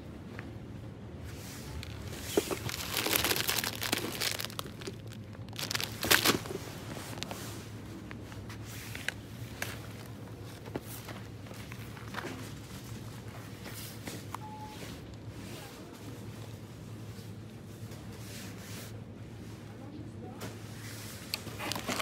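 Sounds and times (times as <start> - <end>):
packaging crinkling: 1.7 - 7.4, 21.4 - 22.0.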